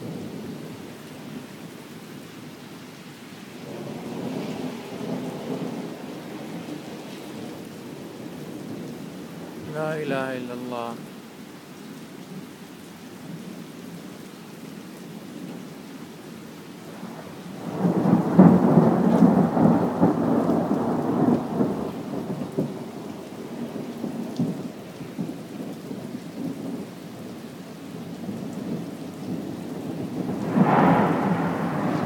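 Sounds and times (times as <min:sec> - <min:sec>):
steady rain: 0:00.0 - 0:32.0
thunder rolling: 0:17.6 - 0:22.5, 0:29.9 - 0:32.0.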